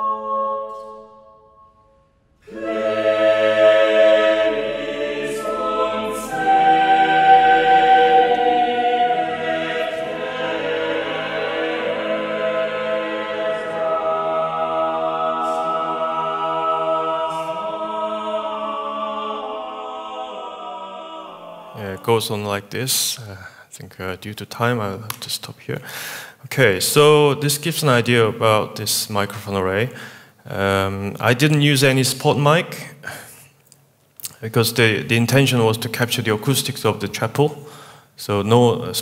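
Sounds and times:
choir singing a cappella: 0.0 - 22.7.

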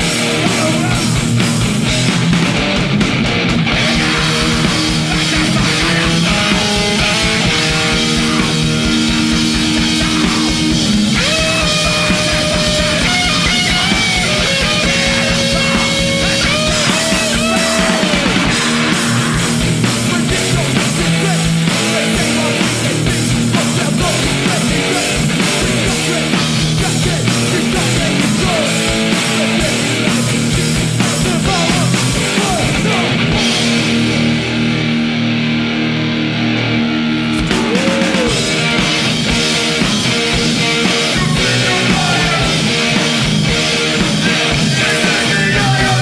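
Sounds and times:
punk band playing live: 0.0 - 46.0.

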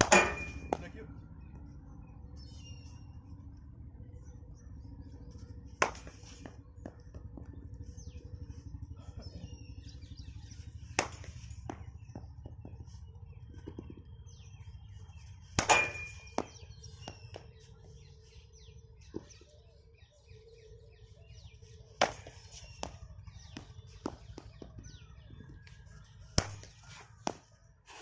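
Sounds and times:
cricket bat striking ball: 0.0 - 0.9, 5.8 - 7.0, 10.9 - 12.8, 15.6 - 17.5, 22.0 - 24.7
birds chirping: 0.0 - 28.0
low steady rumble: 0.0 - 28.0.

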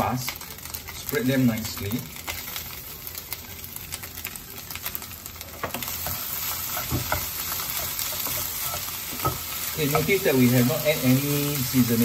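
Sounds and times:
fried rice sizzling in a pan: 0.0 - 12.0.

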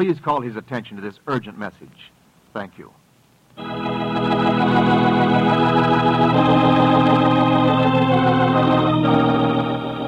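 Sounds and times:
organ playing held chords: 3.6 - 10.0.

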